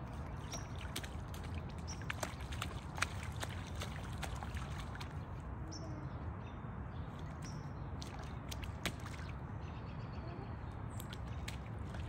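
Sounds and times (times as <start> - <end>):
boots splashing in puddle: 0.0 - 5.4, 7.2 - 9.4, 11.0 - 12.0.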